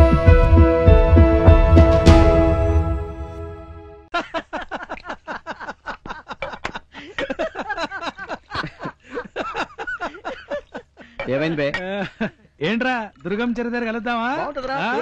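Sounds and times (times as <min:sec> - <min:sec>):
men laughing: 0:04.1 - 0:12.4.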